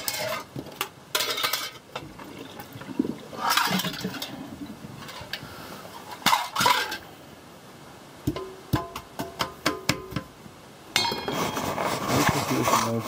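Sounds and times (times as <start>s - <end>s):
pans and cutlery knocking in sink: 8.3s - 10.3s
scrape in metal sink: 11.1s - 13.0s.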